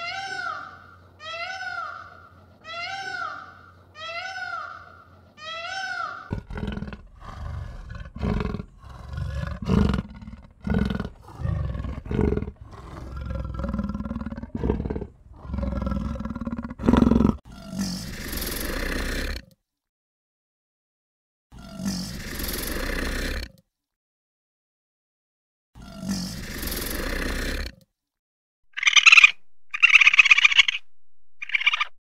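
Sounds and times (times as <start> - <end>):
tiger hissing snarl: 6.3 - 19.4, 21.6 - 23.5, 25.8 - 27.7
tiger growling and roaring: 6.3 - 19.5, 21.6 - 23.6, 25.8 - 27.8.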